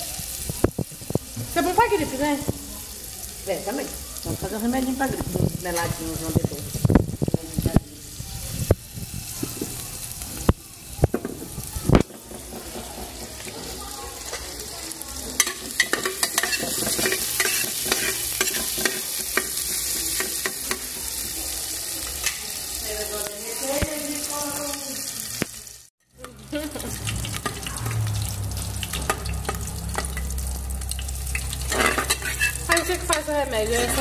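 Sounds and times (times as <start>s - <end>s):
lard sizzling in a pan: 0.0s - 34.0s.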